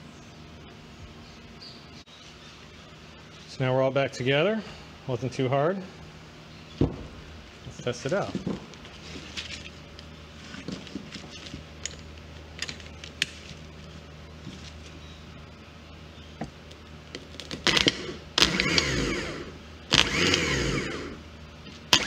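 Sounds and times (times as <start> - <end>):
sharp electrical snap: 17.5 - 18.8
starter motor spinning: 17.6 - 21.2.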